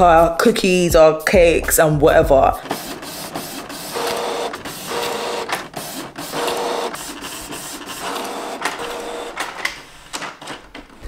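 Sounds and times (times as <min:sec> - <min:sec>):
printer head passes whining: 0:02.6 - 0:09.9
printer clicks: 0:02.6 - 0:11.0.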